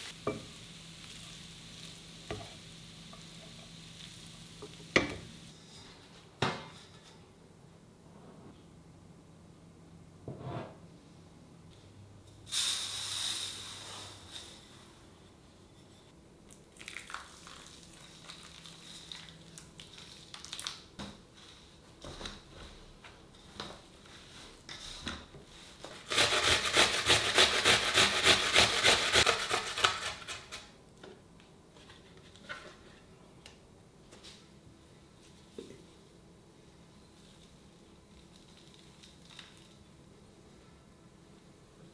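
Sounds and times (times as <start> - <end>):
rapid chopping strokes: 26.0 - 30.6.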